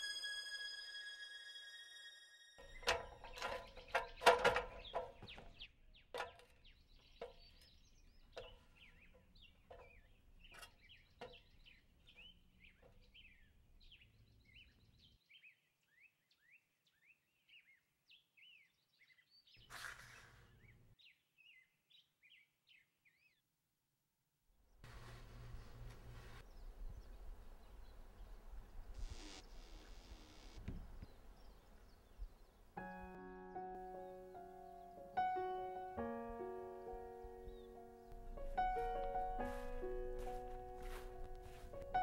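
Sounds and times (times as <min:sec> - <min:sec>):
sharp knocks and clicks: 0:02.6 - 0:11.6
small birds chirping: 0:02.7 - 0:23.5, 0:25.6 - 0:32.8, 0:33.6 - 0:39.6.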